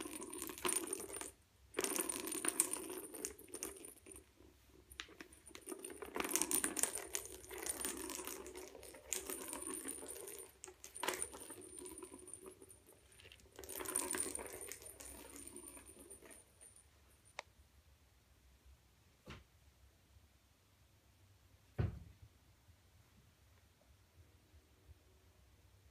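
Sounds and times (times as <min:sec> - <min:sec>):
ball rattling around plastic track: 0:00.0 - 0:16.8.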